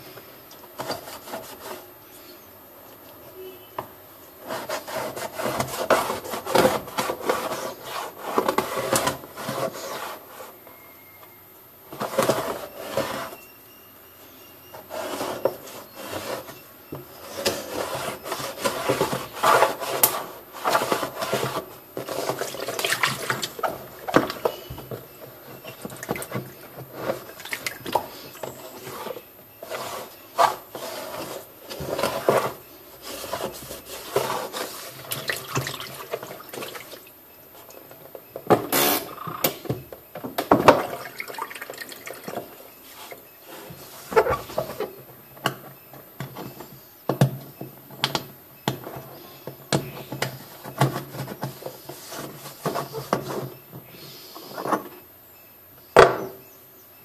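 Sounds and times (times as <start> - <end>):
hand rubbing plastic drum: 4.4 - 10.6, 14.8 - 37.0.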